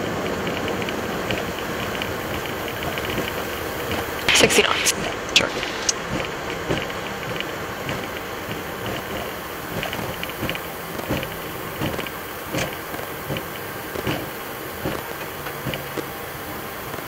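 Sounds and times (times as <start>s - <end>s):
cockpit rushing hiss: 4.3s - 6.3s.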